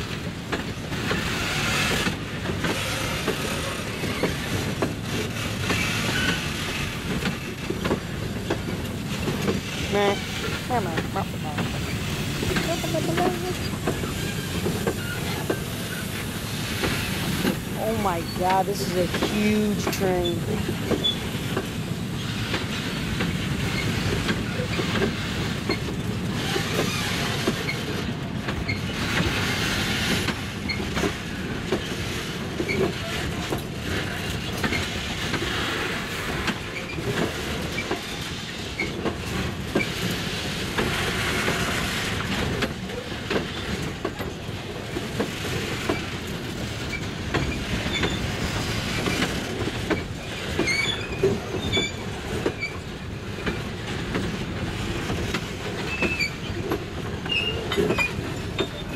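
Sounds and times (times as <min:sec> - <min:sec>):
train wheels rumbling on rail: 0:00.0 - 0:58.9
wheels clicking over rail joints: 0:00.0 - 0:58.9
high wheel squeals: 0:50.6 - 0:52.0.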